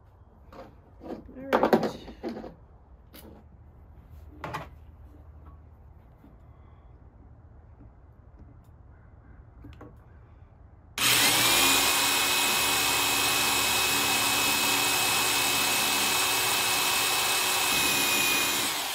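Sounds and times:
electric drill whining: 11.0s - 18.9s.

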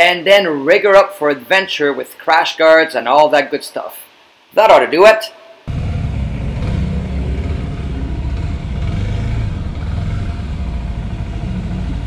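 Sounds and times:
motorcycle engine rumbling: 5.7s - 12.0s.

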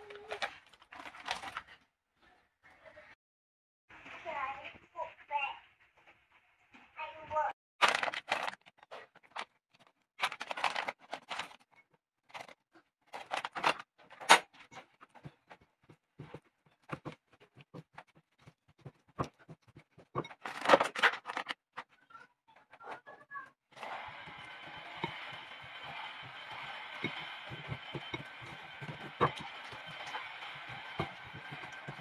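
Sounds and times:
spatula scraping a ceramic bowl: 23.8s - 32.0s.

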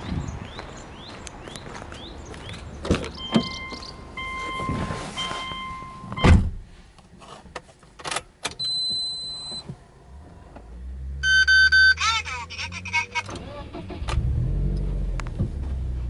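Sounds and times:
car door shutting: 2.9s - 6.6s
car warning chime: 3.2s - 6.3s, 11.2s - 12.3s
high electronic beep: 3.2s - 6.3s, 11.2s - 12.3s.

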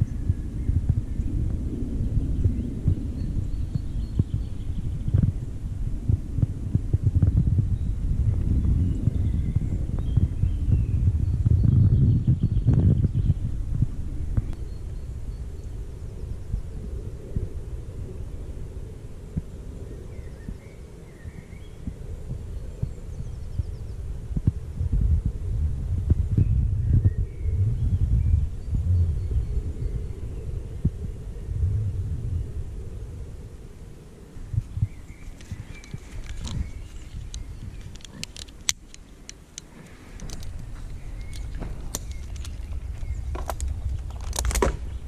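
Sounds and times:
low rumble: 0.0s - 45.0s
wind buffeting microphone: 0.0s - 45.0s
faint bird chirps: 26.4s - 38.3s
metal climbing hardware clinking: 35.4s - 44.8s.

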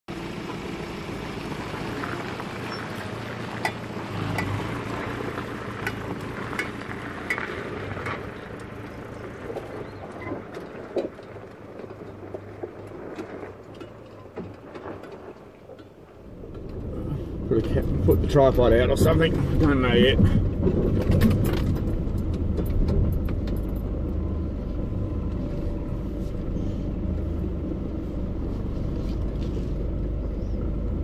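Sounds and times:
low engine hum: 0.0s - 31.0s
tyres crunching on gravel: 0.1s - 24.1s.

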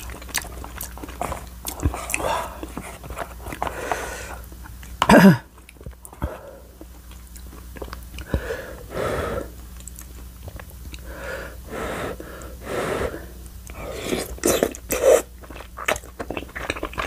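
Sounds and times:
chewing and wet mouth noises: 0.0s - 8.4s, 9.6s - 11.1s, 13.4s - 17.0s.

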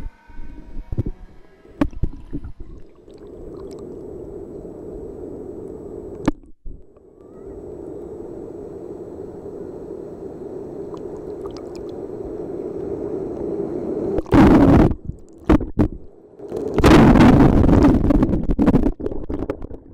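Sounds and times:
sea water sloshing: 1.8s - 4.2s
waves splashing on microphone: 1.8s - 6.3s, 7.4s - 19.9s.

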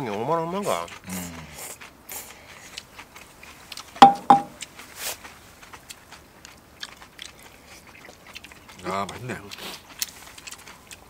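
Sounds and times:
people chewing noodles: 0.0s - 11.0s
tableware clinking: 4.0s - 4.6s.

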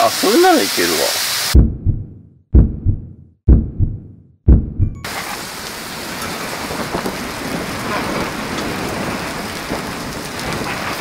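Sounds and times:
rain-like hiss: 0.0s - 1.6s, 5.1s - 11.0s
muffled heartbeat: 1.6s - 5.0s.

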